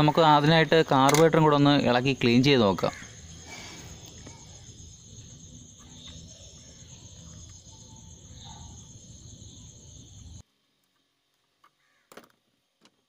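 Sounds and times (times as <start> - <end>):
high-pitched insect trill: 0.0 - 10.4.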